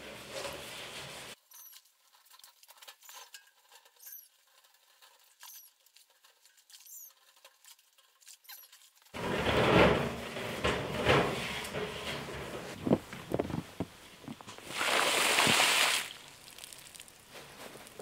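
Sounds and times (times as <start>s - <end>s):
sponge scrubbing metal pot: 0.0s - 12.8s
short high squeaks: 1.3s - 1.9s, 2.9s - 4.5s, 5.2s - 5.8s, 6.7s - 7.2s, 8.3s - 8.9s.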